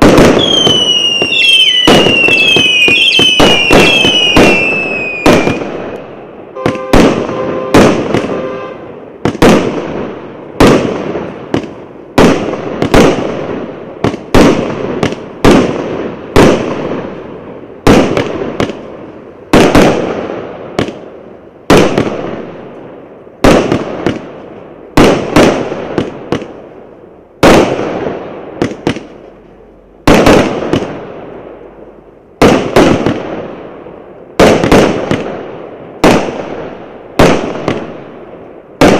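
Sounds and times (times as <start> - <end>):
firework bangs with crackle: 0.0 - 29.4, 30.0 - 38.9
firework whistling tone: 0.2 - 8.9.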